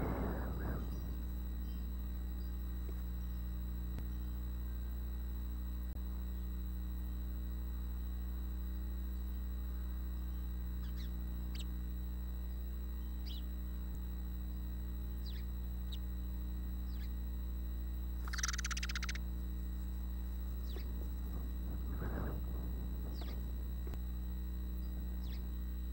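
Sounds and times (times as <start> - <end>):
faint bird chirps: 0.0 - 5.0, 9.2 - 13.6, 14.4 - 17.3, 18.2 - 23.9, 24.8 - 25.6
steady low hum: 0.0 - 25.9.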